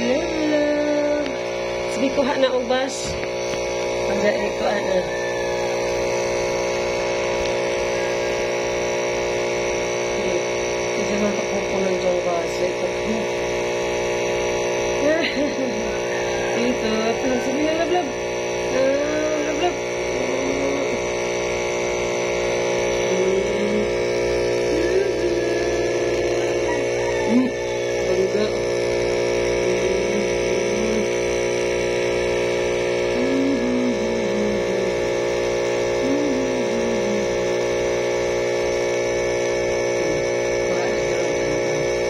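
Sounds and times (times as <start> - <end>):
steady electric hum: 0.0 - 42.0.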